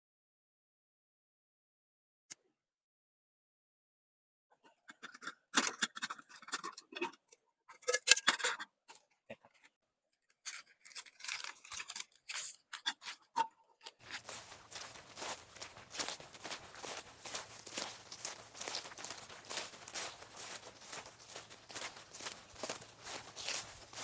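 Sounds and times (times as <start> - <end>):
plastic packaging crinkling: 10.8 - 12.6.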